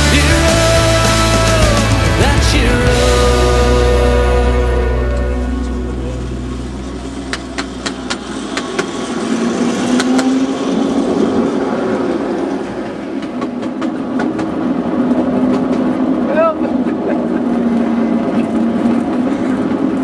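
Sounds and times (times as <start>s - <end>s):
music track: 0.0s - 9.1s.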